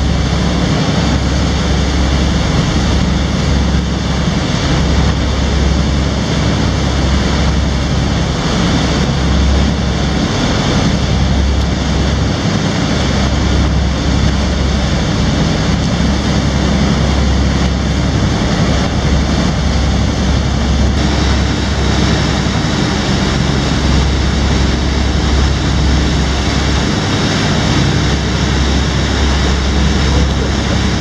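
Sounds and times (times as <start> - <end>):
boat engine droning: 0.0 - 31.0
rushing water from wake: 0.0 - 31.0.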